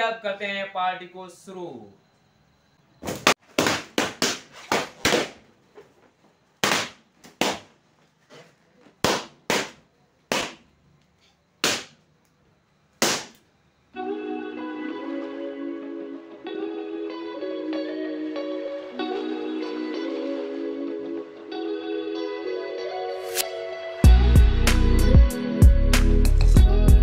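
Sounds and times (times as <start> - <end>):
balloons popping: 3.4 - 5.4, 6.6 - 7.8, 9.0 - 10.7, 11.6 - 12.0, 13.0 - 13.4
music: 14.0 - 27.0.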